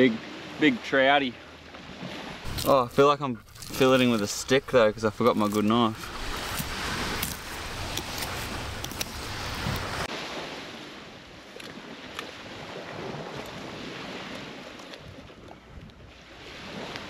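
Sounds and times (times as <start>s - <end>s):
waves washing on beach: 0.0s - 15.5s, 16.1s - 17.0s
wind on microphone: 5.9s - 10.1s.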